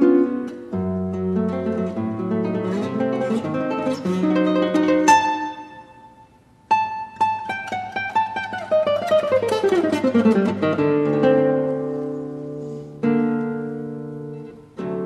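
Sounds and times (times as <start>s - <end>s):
classical guitar playing: 0.0s - 15.0s.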